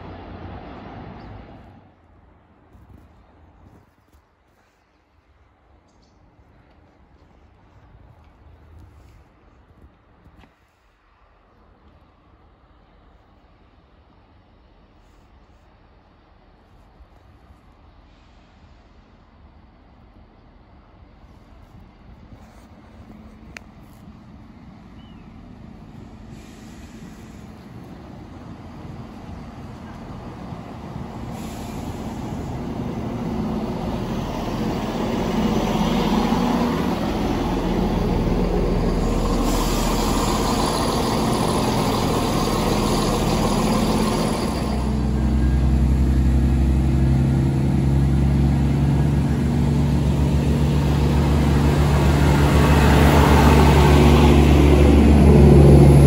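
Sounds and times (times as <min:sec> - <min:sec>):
diesel engines droning: 0:00.0 - 0:03.0, 0:11.1 - 0:56.0
diesel train arriving: 0:17.8 - 0:21.2, 0:24.3 - 0:56.0.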